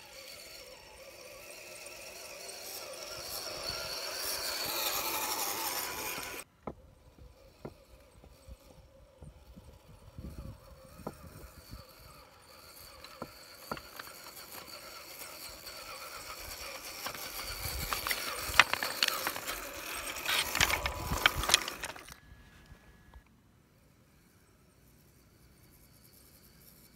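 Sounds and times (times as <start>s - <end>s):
toy truck motor whining: 0.0s - 26.9s
tyres clattering slate: 16.8s - 22.2s.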